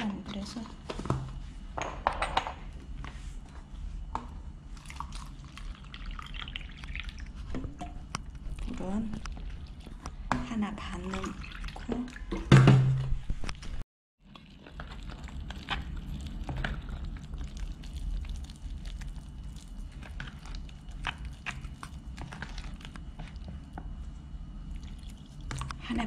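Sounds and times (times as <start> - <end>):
spoon stirring wet batter: 14.2 - 25.8.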